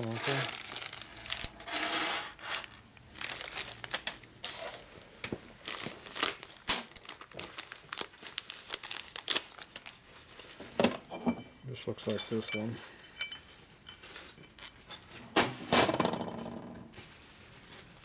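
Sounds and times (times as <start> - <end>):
paper wrapper crinkling: 0.0 - 1.6, 2.4 - 4.9, 5.6 - 10.6, 17.0 - 18.0.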